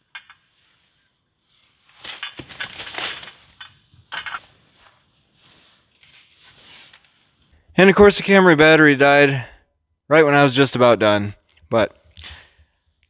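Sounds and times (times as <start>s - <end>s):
metal clinking and scraping: 1.9s - 5.0s.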